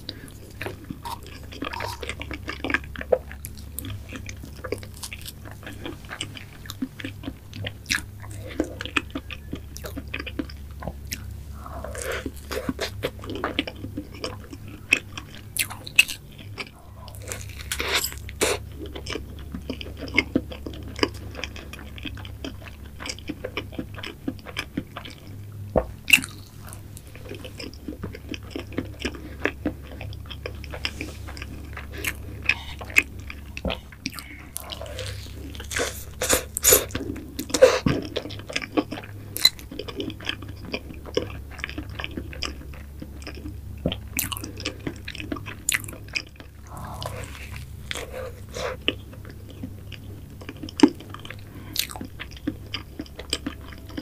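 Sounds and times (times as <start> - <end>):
close chewing mouth sounds: 0.0 - 54.0.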